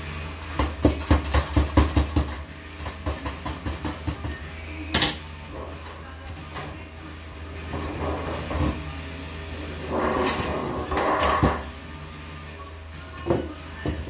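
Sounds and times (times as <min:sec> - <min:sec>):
hammer tapping on sheet metal: 0:00.6 - 0:04.4.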